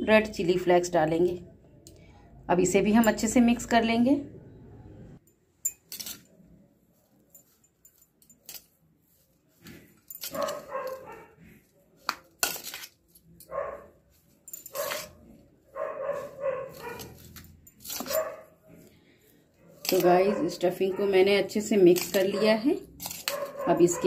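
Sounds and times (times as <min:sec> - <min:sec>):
spoon scraping in a bowl: 0:05.6 - 0:06.4, 0:07.3 - 0:20.6, 0:21.4 - 0:24.0
dog barking: 0:10.3 - 0:11.4, 0:13.5 - 0:14.0, 0:14.7 - 0:17.2, 0:18.0 - 0:18.6, 0:20.2 - 0:21.2, 0:23.2 - 0:24.0.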